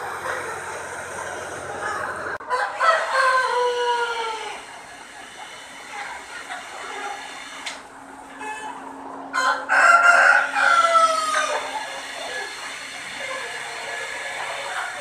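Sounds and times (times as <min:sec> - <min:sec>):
steady low hum: 0:00.0 - 0:09.4
chickens clucking: 0:00.0 - 0:15.0
rooster crowing: 0:01.8 - 0:04.6, 0:08.4 - 0:11.8.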